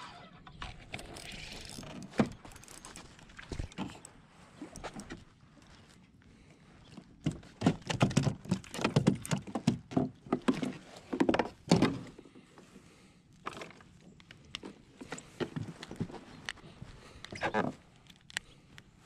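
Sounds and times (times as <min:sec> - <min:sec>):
knocks and clatters on plastic kayak: 0:06.9 - 0:12.2, 0:14.6 - 0:16.4.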